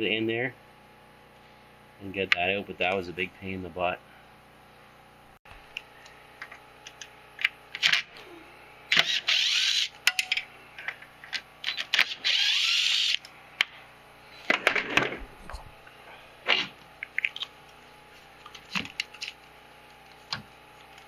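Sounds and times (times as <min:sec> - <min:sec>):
cordless power tool running: 0:08.9 - 0:09.9, 0:11.7 - 0:13.2
clicks and knocks of tools: 0:10.0 - 0:12.1.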